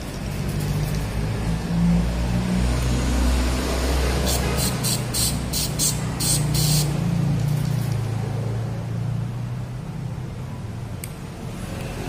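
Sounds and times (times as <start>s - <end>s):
aerosol spray hisses: 4.3s - 6.9s.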